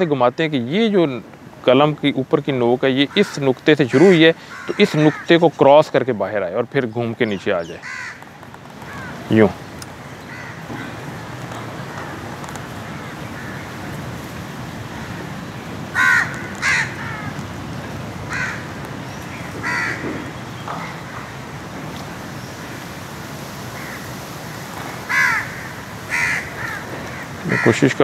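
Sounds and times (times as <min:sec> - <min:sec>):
outdoor background hiss: 0:00.0 - 0:28.0
crows cawing: 0:03.0 - 0:05.9, 0:07.6 - 0:21.4, 0:23.7 - 0:28.0.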